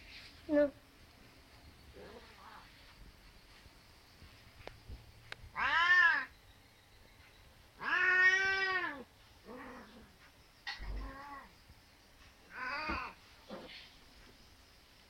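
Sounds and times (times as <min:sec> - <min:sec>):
cat meowing: 0:05.6 - 0:06.3, 0:07.8 - 0:09.9, 0:12.5 - 0:13.2.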